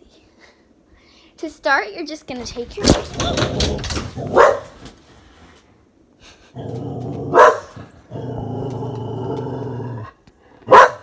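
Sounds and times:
dog barking sharply: 4.2s - 4.8s, 7.3s - 7.8s, 10.7s - 11.0s
dog growling: 6.4s - 10.2s.

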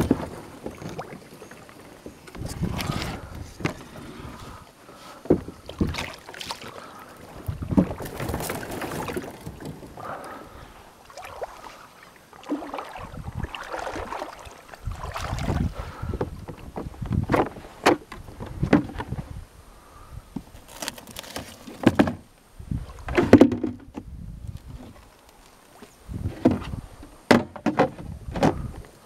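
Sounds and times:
rustling and shuffling: 1.7s - 6.0s, 7.3s - 10.2s.

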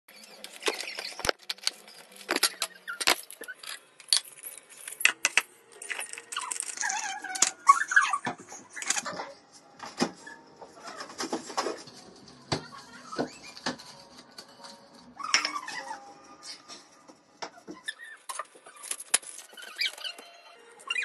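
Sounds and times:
plastic wrappers crinkling: 0.2s - 7.2s.

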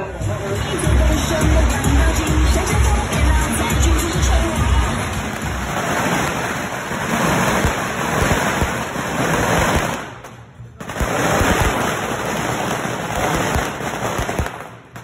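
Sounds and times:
loud music with heavy beat: 0.0s - 6.3s
firecrackers crackling: 0.0s - 15.0s.

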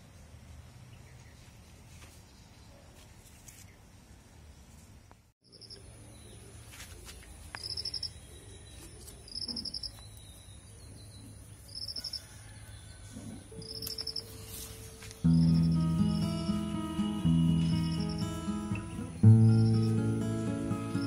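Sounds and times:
insects chirping: 5.4s - 5.9s, 7.5s - 10.5s, 13.6s - 21.0s
insect continuous trill: 5.4s - 6.0s, 7.4s - 10.7s, 11.6s - 21.0s.

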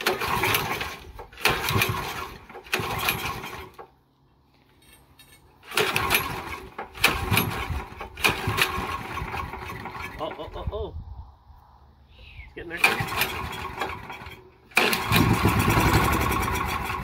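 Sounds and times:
engine cranking by pull rope: 0.0s - 4.0s, 5.6s - 10.5s, 12.6s - 17.0s.

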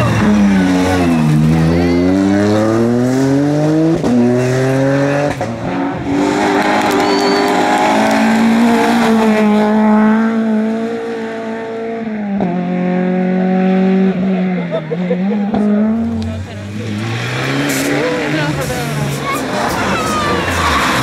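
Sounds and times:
rally car engine revving: 0.0s - 21.0s
tyre squeal: 6.8s - 7.8s.

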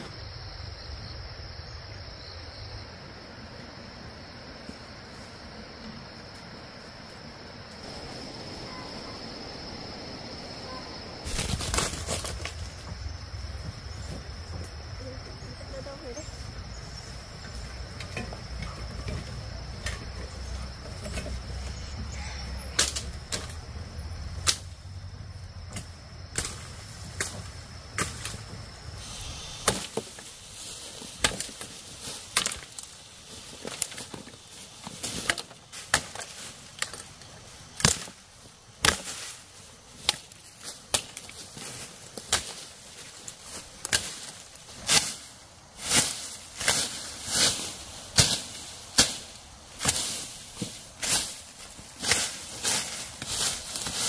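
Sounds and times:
high insect buzz: 0.0s - 34.8s.

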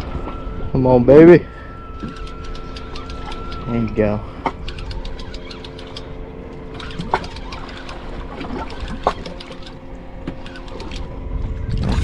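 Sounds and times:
idling boat engine hum: 0.0s - 12.0s
water against hull: 0.0s - 12.0s
fishing reel clicking: 2.0s - 6.1s, 6.7s - 9.8s, 10.4s - 11.1s.

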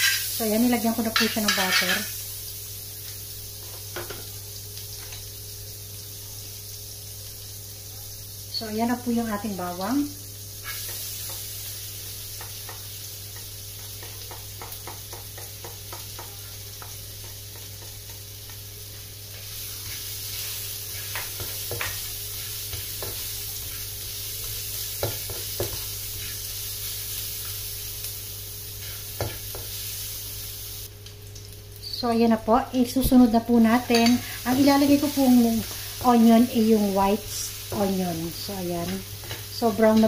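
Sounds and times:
garlic sizzling in butter: 0.0s - 40.0s
spatula tapping pan: 1.1s - 2.0s, 12.3s - 26.3s, 29.2s - 29.8s, 33.9s - 34.7s.

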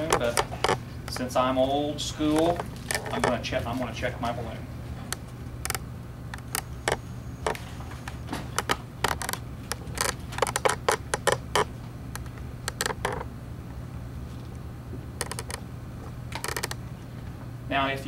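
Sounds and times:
plastic clicks and rattles: 8.5s - 13.2s, 15.2s - 15.6s, 16.3s - 16.8s.

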